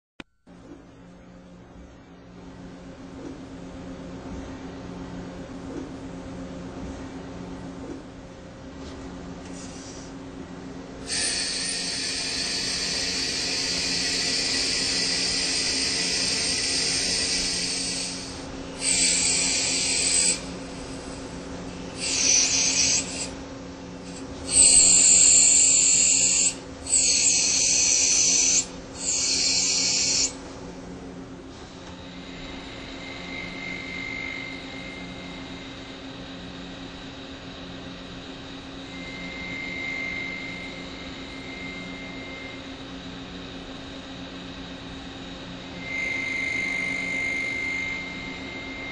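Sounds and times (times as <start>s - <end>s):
low machine hum: 0.2s - 48.9s
thin high whine: 0.2s - 48.9s
lathe cutting hiss: 11.0s - 23.4s, 24.0s - 30.4s, 31.5s - 36.0s, 38.8s - 42.6s, 45.6s - 48.9s.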